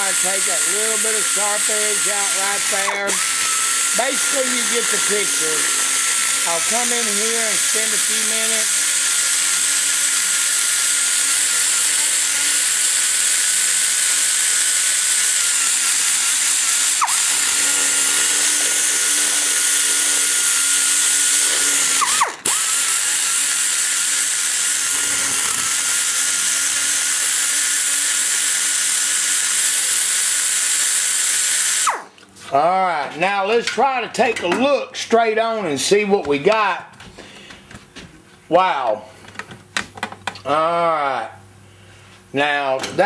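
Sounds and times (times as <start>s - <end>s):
die grinder whining: 0.0s - 32.2s.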